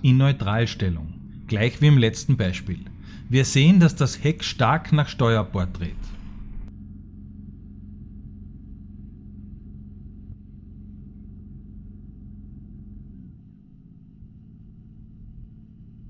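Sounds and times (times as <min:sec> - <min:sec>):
boat engine humming: 0:00.0 - 0:16.0.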